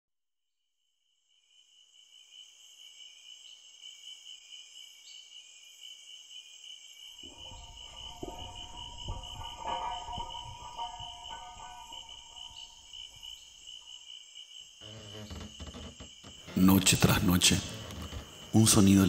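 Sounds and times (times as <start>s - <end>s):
crickets chirring: 1.1s - 19.0s
low rumble with sustained tones: 7.3s - 13.2s.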